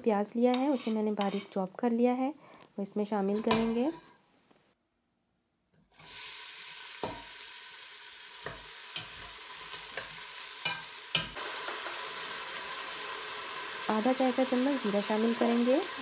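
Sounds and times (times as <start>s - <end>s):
onion sizzling in hot oil: 6.0s - 16.0s.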